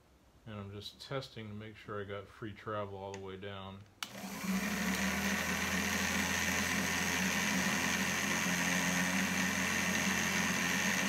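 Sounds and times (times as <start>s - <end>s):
electric drill motor running: 4.0s - 11.0s.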